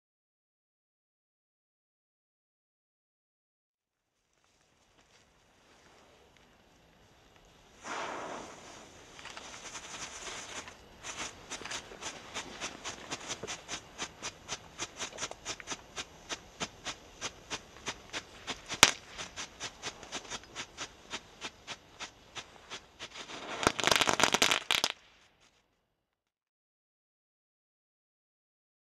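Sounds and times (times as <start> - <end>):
dense firework crackling: 4.5 - 25.3
firework fountain popping: 7.7 - 25.2
loud firework crack: 7.8 - 25.3.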